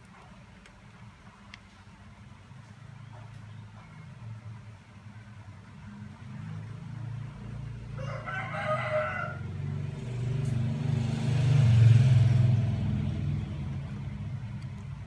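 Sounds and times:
vehicle engine hum: 0:00.0 - 0:15.0
rooster crowing: 0:07.9 - 0:09.8.

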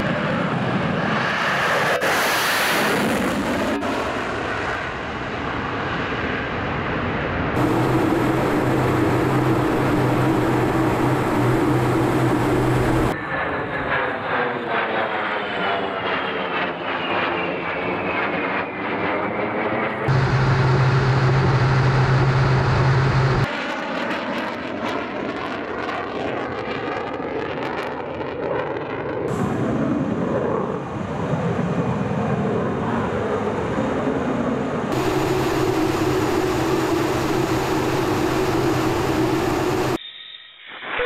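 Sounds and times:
jet passing: 0:00.0 - 0:25.5, 0:34.9 - 0:40.0
jet engine drone: 0:00.0 - 0:41.0.

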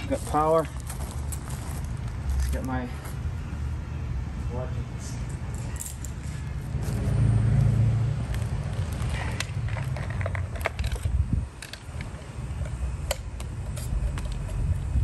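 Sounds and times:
steady low rumble: 0:00.0 - 0:15.0
tools and plastic package handled: 0:08.3 - 0:14.8.

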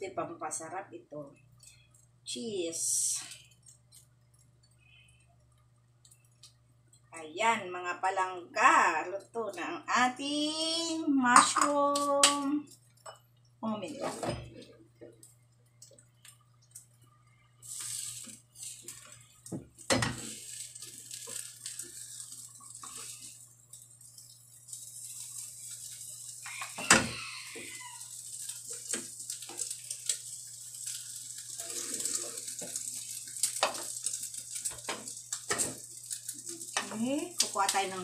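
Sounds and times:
low steady hum: 0:00.0 - 0:38.0
egg sizzling: 0:01.3 - 0:07.2, 0:08.7 - 0:38.0
spatula scraping frying pan: 0:17.6 - 0:38.0.

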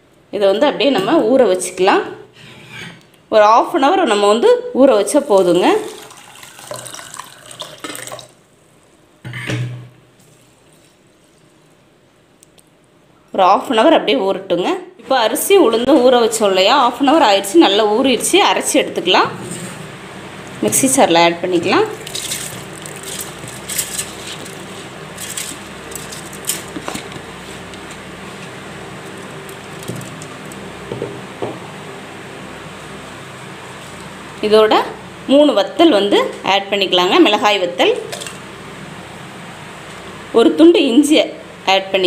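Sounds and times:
water pouring into a glass bowl: 0:05.6 - 0:08.4, 0:22.0 - 0:24.6.

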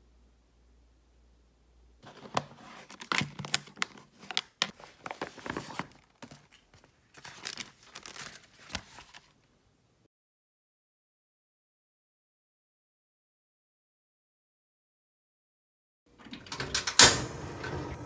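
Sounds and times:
plastic wrapping crackling and tearing: 0:02.0 - 0:09.4.

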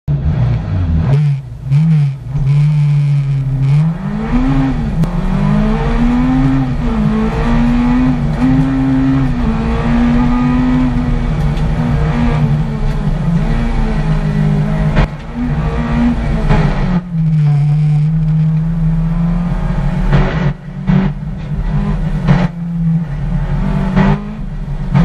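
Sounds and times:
race car engine accelerating: 0:00.1 - 0:25.0.

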